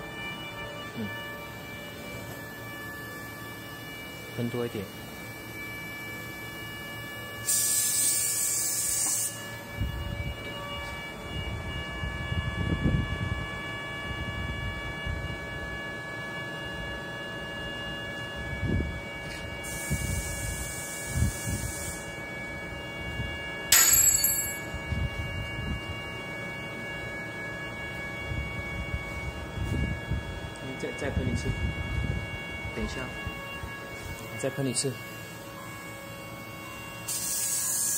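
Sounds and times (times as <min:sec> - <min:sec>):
machine hum: 0:00.0 - 0:37.9
high steady tones: 0:23.7 - 0:25.2.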